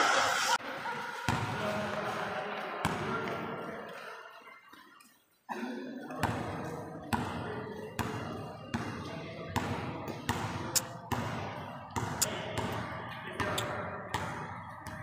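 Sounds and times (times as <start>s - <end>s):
basketball bouncing in a gym: 2.8s - 3.5s, 6.1s - 15.0s.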